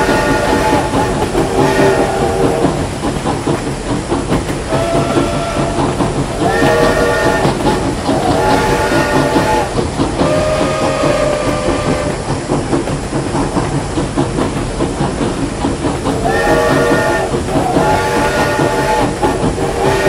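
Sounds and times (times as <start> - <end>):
steam whistle blasts: 0.0 - 2.7, 4.7 - 5.8, 6.4 - 12.3, 16.2 - 20.0
steam locomotive chuffing: 0.0 - 20.0.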